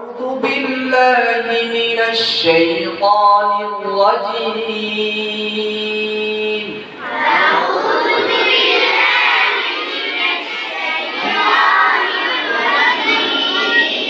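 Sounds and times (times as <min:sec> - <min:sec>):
children chanting in unison: 0:06.9 - 0:14.0.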